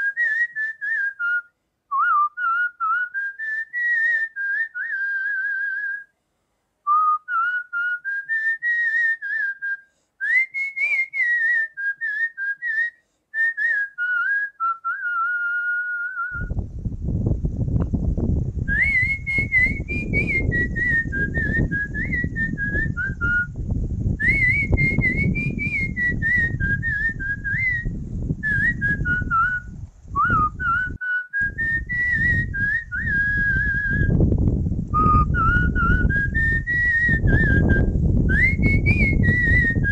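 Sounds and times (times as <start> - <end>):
person whistling a melody: 0.0 - 6.1, 6.9 - 16.5, 18.7 - 23.5, 24.2 - 34.2, 35.0 - 39.9
low rumbling noise: 16.3 - 39.9.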